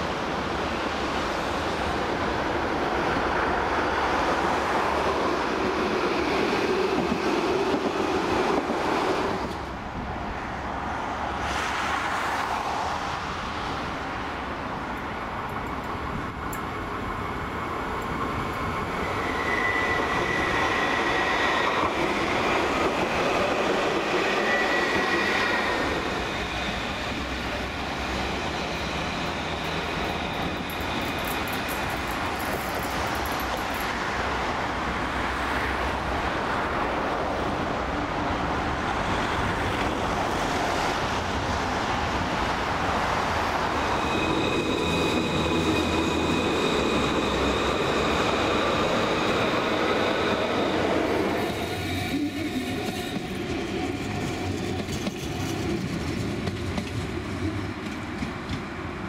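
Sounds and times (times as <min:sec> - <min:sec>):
tram rolling rumble: 0:00.0 - 0:59.0
wheel squeal: 0:19.0 - 0:21.9, 0:24.3 - 0:27.0.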